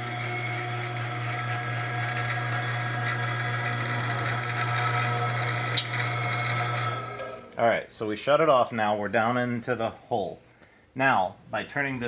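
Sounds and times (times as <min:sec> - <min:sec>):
drill press motor running: 0:00.0 - 0:07.6
short rising squeal: 0:04.0 - 0:06.6.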